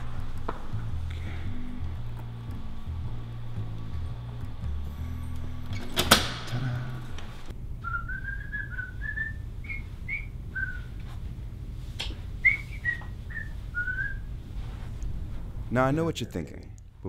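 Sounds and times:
low music: 0:00.0 - 0:07.6
person whistling a tune: 0:07.8 - 0:11.0, 0:12.4 - 0:14.3.

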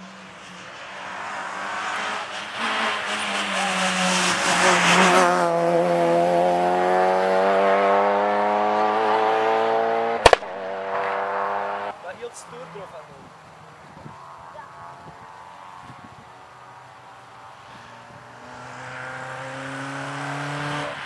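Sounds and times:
engine accelerating away: 0:00.0 - 0:21.0
rally car passing at speed: 0:00.0 - 0:21.0
sharp crack: 0:10.2 - 0:11.2.

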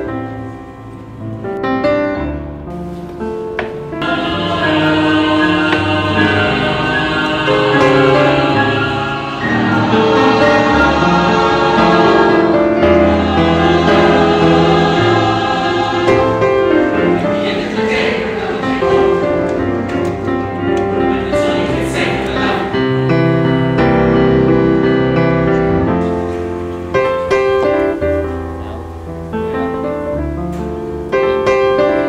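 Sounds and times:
choir singing sustained chords: 0:03.9 - 0:27.8.

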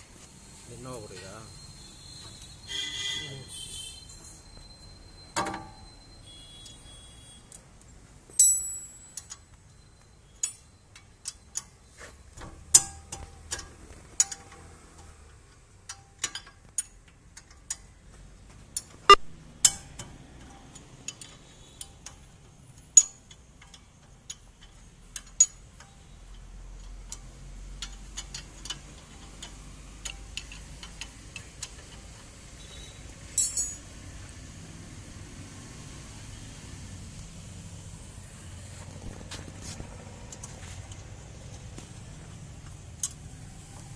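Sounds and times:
metallic clinks of hand tools: 0:33.3 - 0:33.9.

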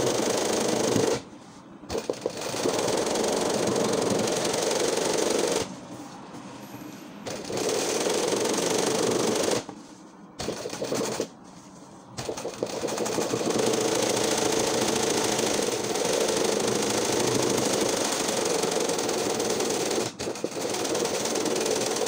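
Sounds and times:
sewing machine rattling: 0:00.0 - 0:01.2, 0:01.9 - 0:05.7, 0:07.2 - 0:09.7, 0:10.4 - 0:11.3, 0:12.2 - 0:22.0.

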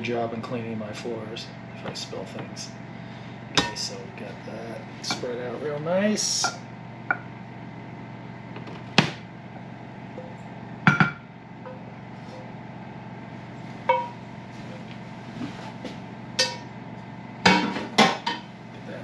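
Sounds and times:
steady low hum: 0:00.0 - 0:19.0
pan and spatula clanking on dish: 0:13.9 - 0:14.2, 0:16.4 - 0:16.7.

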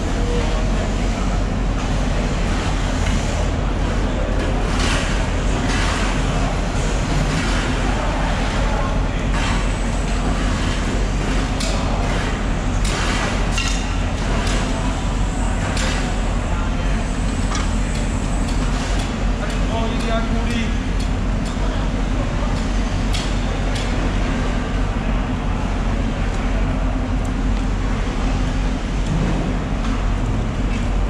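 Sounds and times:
low machine rumble: 0:00.0 - 0:31.0.

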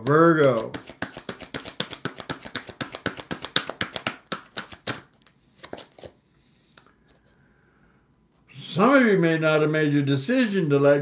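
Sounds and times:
deck of cards tapping: 0:00.0 - 0:06.1
cards being shuffled: 0:00.0 - 0:06.2.

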